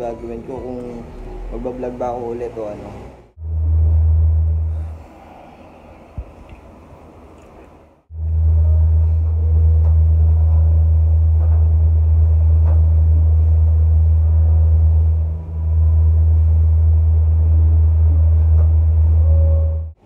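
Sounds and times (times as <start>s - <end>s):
loud steady low hum: 0.0s - 20.0s.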